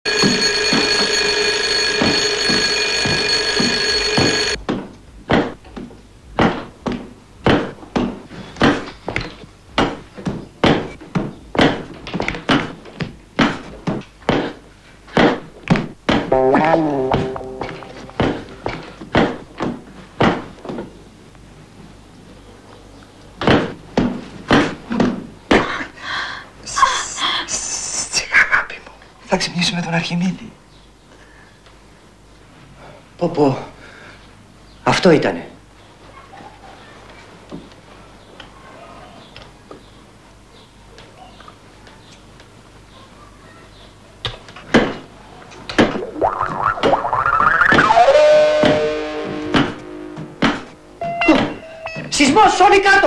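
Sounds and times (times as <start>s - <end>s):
alarm clock bell ringing: 0.1s - 4.6s.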